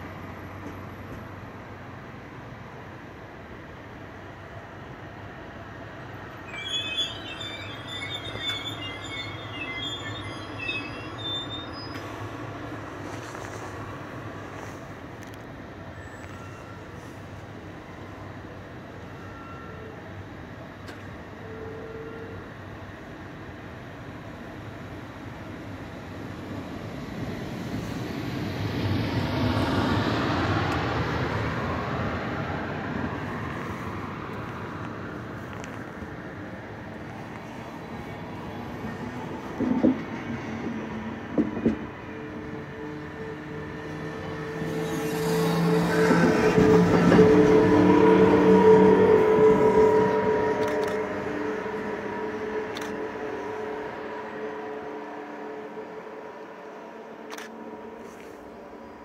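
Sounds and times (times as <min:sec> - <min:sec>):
train rumble: 0:00.0 - 0:59.0
steel wheels squealing: 0:06.3 - 0:13.4, 0:15.9 - 0:17.2.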